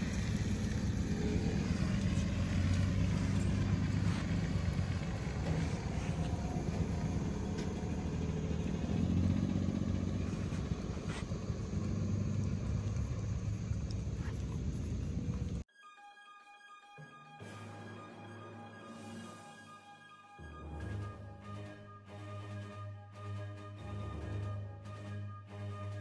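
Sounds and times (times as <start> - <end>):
truck engine rumbling: 0.0 - 15.6.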